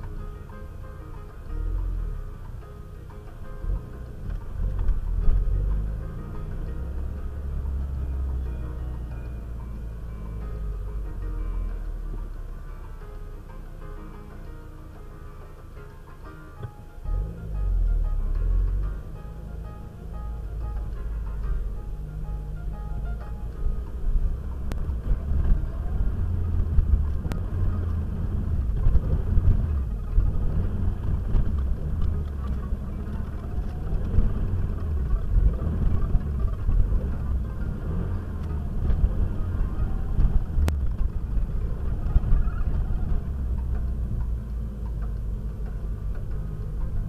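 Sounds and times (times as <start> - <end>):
car engine and tyres rumbling: 0.0 - 47.0.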